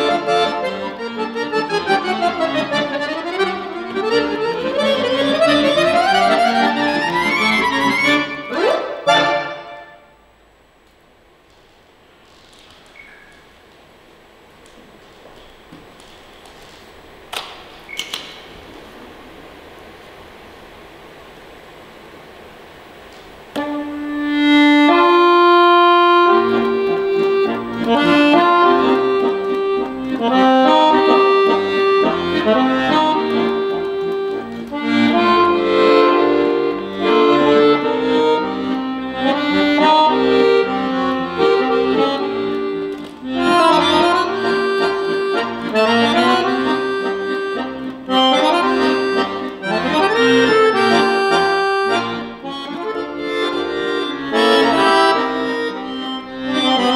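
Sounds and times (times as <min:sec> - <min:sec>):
piano accordion playing: 0:00.0 - 0:10.2, 0:23.5 - 0:56.9.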